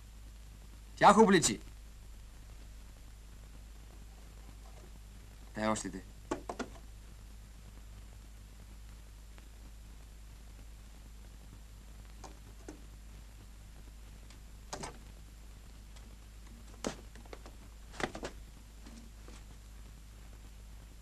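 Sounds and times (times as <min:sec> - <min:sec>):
steady low hum: 0:00.0 - 0:21.0
knocks and clicks of handling: 0:06.3 - 0:06.8, 0:16.5 - 0:19.1.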